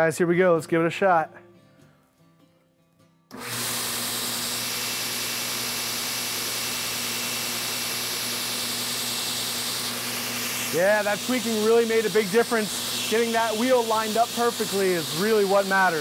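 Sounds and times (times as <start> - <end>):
electric motor hum: 3.3 - 16.0.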